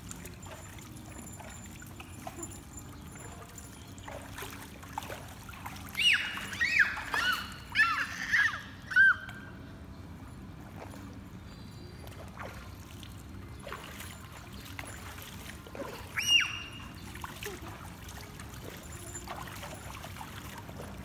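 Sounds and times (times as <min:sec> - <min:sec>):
pool water sloshing: 0:00.0 - 0:21.0
child squealing: 0:06.0 - 0:09.3, 0:16.2 - 0:16.8.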